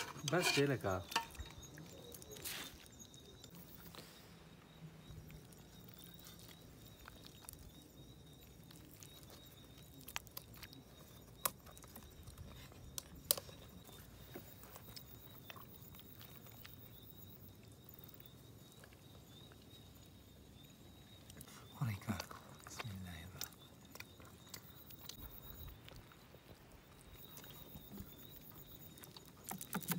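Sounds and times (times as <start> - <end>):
clicks and taps on plates: 0.0 - 1.5.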